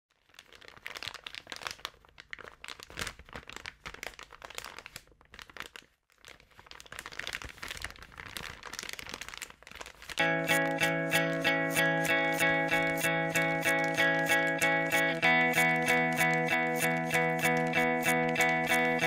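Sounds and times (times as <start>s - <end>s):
crackling and crunching clicks: 8.3s - 19.0s.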